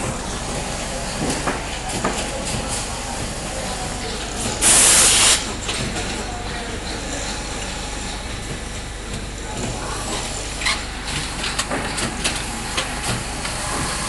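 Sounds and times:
loud hiss: 0:04.6 - 0:05.4.

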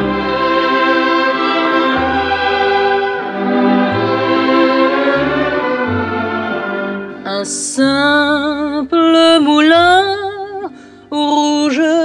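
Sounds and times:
violins playing sweeping melody: 0:00.0 - 0:07.6.

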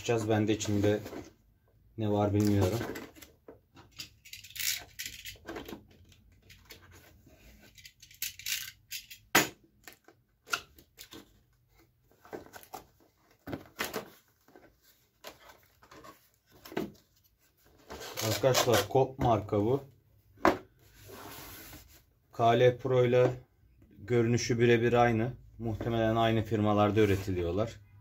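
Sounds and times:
cardboard and tape tearing: 0:18.0 - 0:18.9.

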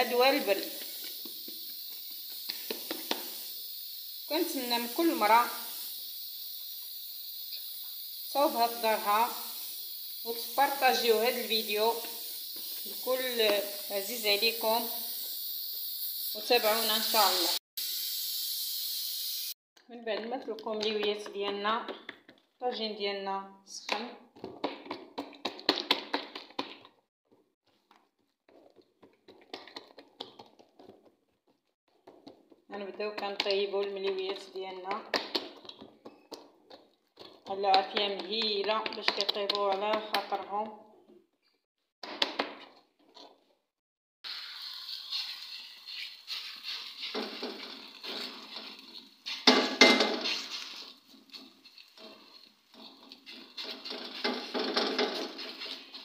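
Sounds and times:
hands slapping dough: 0:24.4 - 0:27.0, 0:29.0 - 0:31.2.

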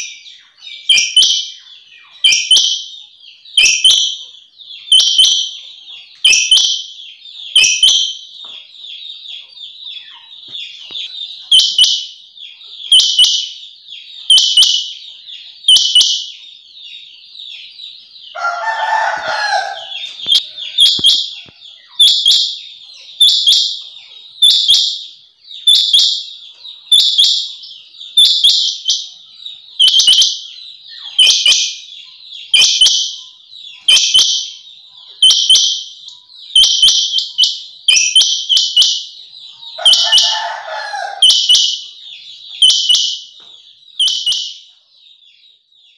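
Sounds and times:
quail calling: 0:18.3 - 0:24.8, 0:25.6 - 0:43.4.

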